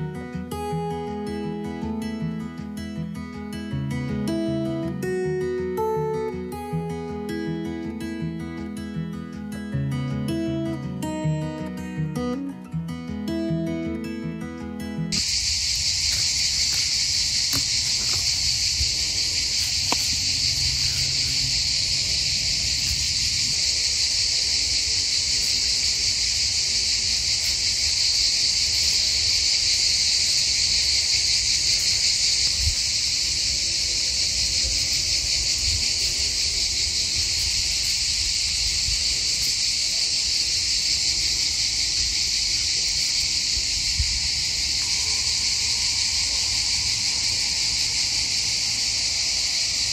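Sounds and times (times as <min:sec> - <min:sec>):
insects buzzing: 0:13.2 - 0:49.9.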